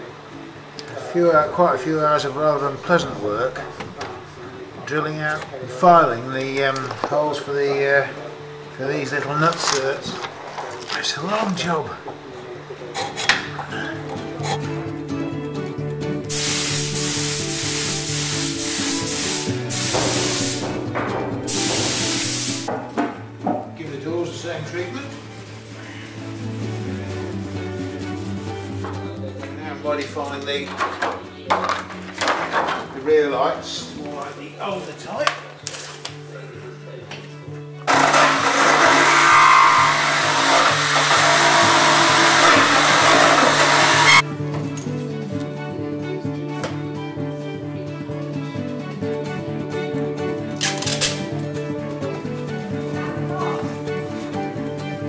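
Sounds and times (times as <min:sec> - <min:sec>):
background music with held notes: 0:00.0 - 0:55.0
paint spray gun hissing: 0:16.3 - 0:22.7, 0:40.1 - 0:44.2
power tool hissing and whining: 0:21.5 - 0:22.7, 0:37.9 - 0:44.2.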